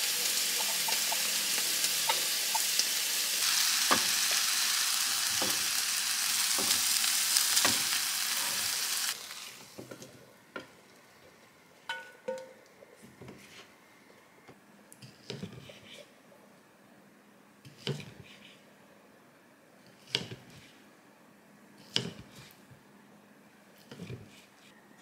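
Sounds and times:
meat and vegetables sizzling: 0:00.0 - 0:10.0.

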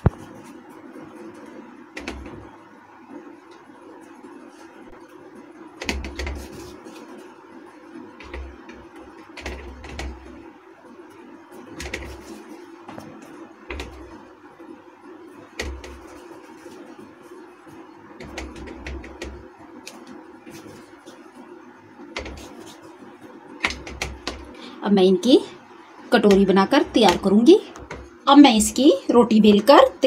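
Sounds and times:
dough being rolled by hand: 0:00.0 - 0:24.6, 0:26.1 - 0:28.7
steady low hum: 0:00.0 - 0:30.0.

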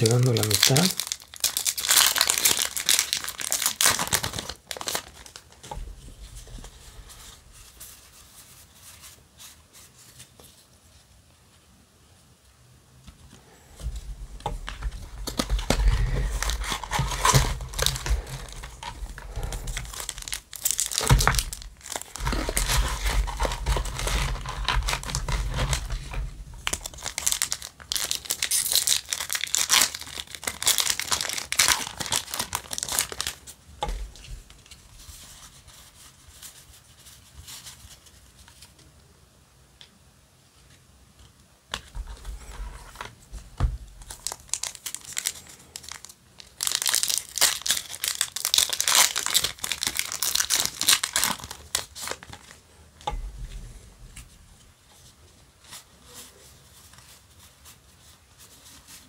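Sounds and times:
foil wrapper crinkling and tearing: 0:00.0 - 0:05.7, 0:14.4 - 0:38.7, 0:43.9 - 0:52.6.

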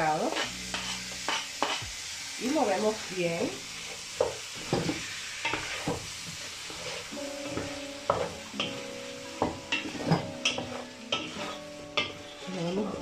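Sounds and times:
frying hiss: 0:00.0 - 0:13.0
wooden spoon scraping a pot: 0:00.3 - 0:01.8, 0:09.7 - 0:11.6.

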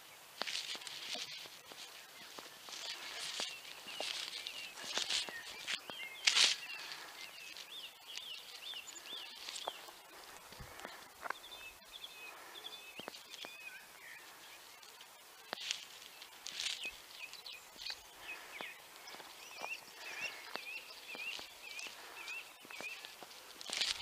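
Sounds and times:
small birds chirping: 0:00.0 - 0:24.0
footsteps on concrete: 0:00.4 - 0:07.7.

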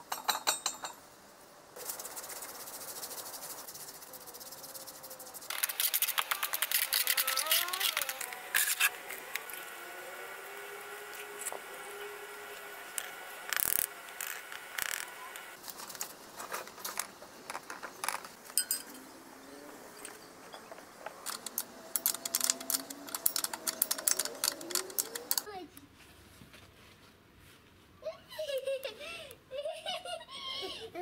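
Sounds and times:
spanner tightening bolts clicking: 0:21.2 - 0:25.5.

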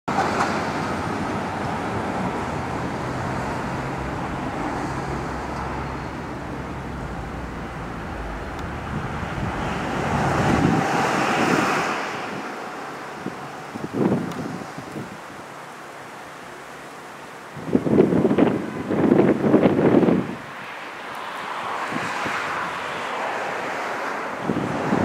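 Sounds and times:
vehicle passing by: 0:00.1 - 0:14.9, 0:19.1 - 0:25.0
engine rumble: 0:00.1 - 0:20.0.

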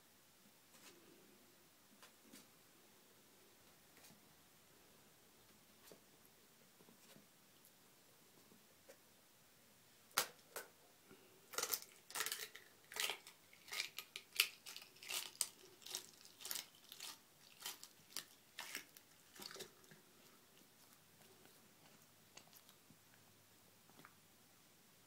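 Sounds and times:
lizard crunching an egg: 0:11.5 - 0:20.1.

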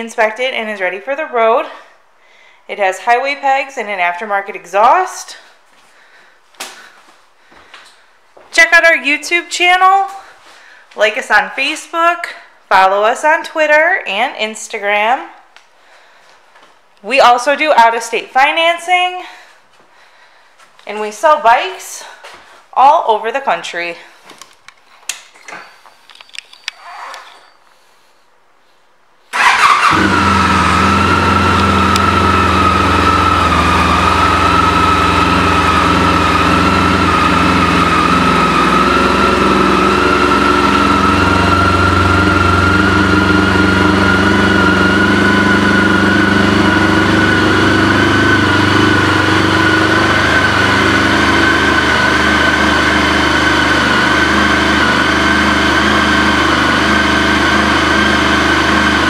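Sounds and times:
motorcycle engine starting and idling: 0:29.3 - 0:59.0
high steady whine: 0:30.0 - 0:59.0.

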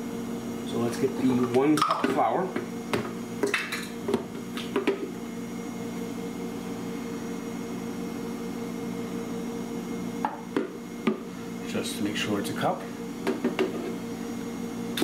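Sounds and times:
kitchen appliance hum: 0:00.0 - 0:15.0.

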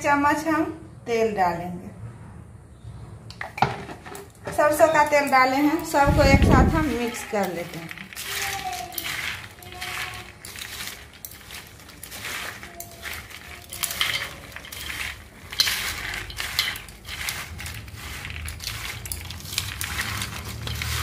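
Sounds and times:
chickpeas rattling on steel plate: 0:04.2 - 0:21.0.

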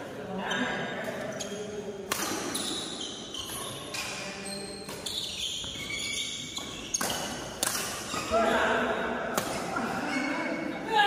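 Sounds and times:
shoes squeaking on floor: 0:00.4 - 0:01.8, 0:02.4 - 0:08.6
rackets hitting shuttlecock: 0:02.0 - 0:08.4, 0:09.3 - 0:10.0.

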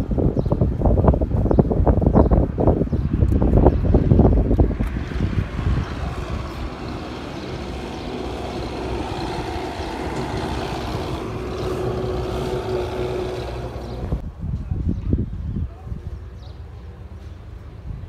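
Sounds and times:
heavy vehicle engine droning: 0:04.1 - 0:14.2.

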